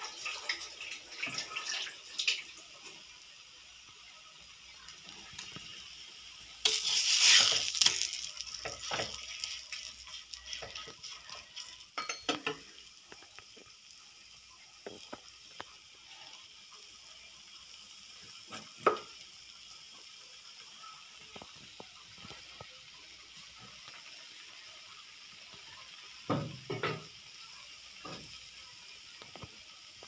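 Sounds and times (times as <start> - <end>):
flatbread sizzling in oil: 0.0 - 30.0
metal clicks and scrapes on griddle: 6.6 - 13.4.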